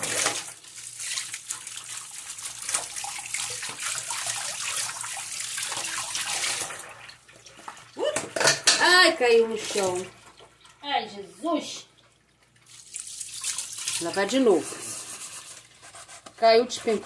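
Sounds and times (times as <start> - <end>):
tap water splashing into sink: 0.0 - 8.8, 11.9 - 14.2.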